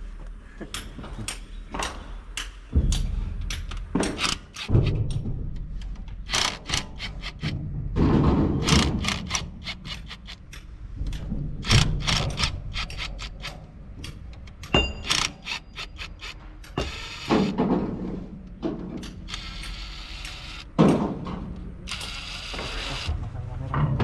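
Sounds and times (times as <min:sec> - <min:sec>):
tools clinking on metal: 0:12.8 - 0:16.8
cordless power driver running: 0:19.3 - 0:20.6.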